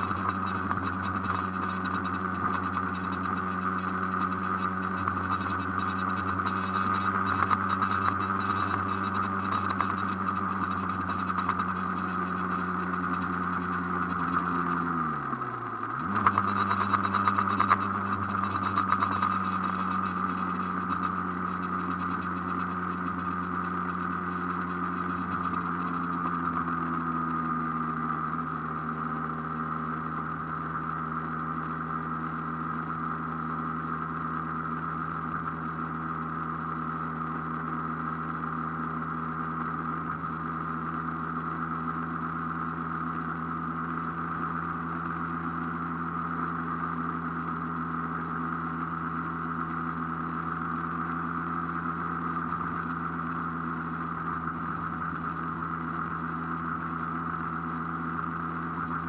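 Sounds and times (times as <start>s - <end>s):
motorcycle two-stroke engine running: 0.0s - 59.0s.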